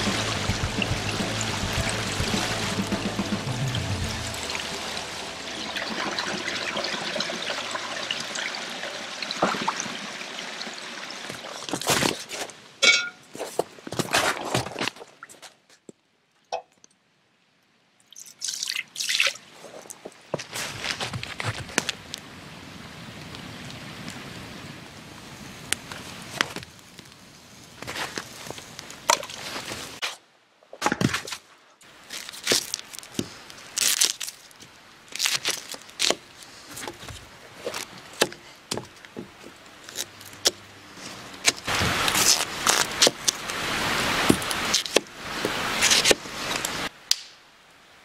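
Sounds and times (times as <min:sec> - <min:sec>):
rustling: 0:31.0 - 0:46.9.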